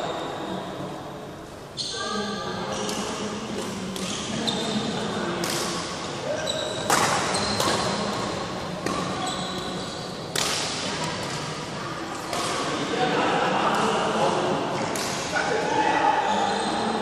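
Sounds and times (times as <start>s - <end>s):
shoes squeaking on court floor: 4.0s - 5.0s, 6.2s - 8.2s, 8.8s - 10.1s, 16.2s - 17.0s
rackets hitting shuttlecock: 5.4s - 6.0s, 6.8s - 9.2s, 10.3s - 11.5s, 14.8s - 15.4s.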